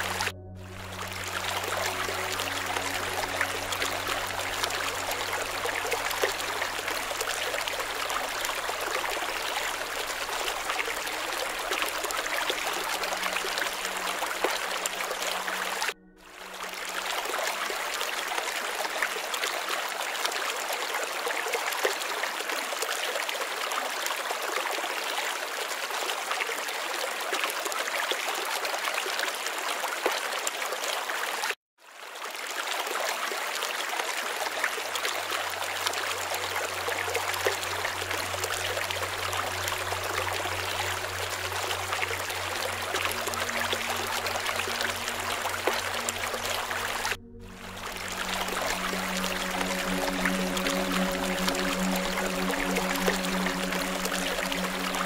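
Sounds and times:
low steady hum: 0.0 - 19.1, 35.1 - 55.0
running water: 0.0 - 55.0.

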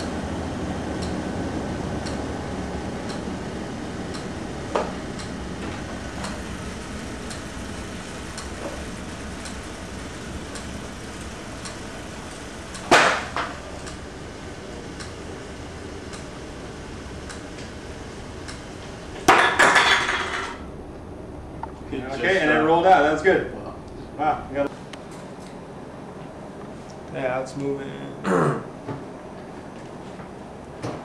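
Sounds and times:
film camera whirring: 2.0 - 19.3.

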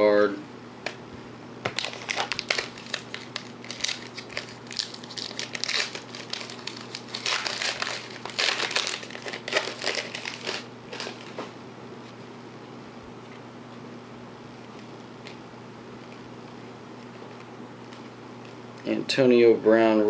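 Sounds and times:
foil wrapper crinkling: 1.7 - 11.4.

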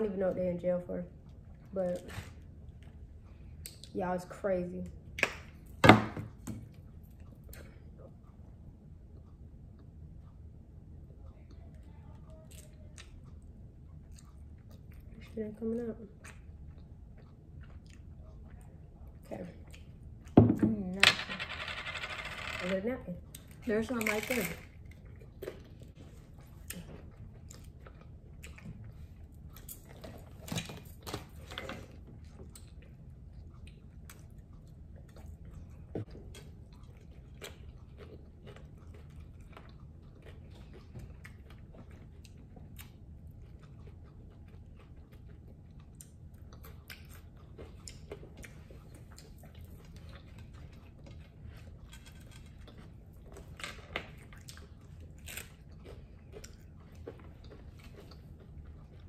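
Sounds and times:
chewing crunchy taco shells: 11.0 - 20.4, 24.3 - 59.0.

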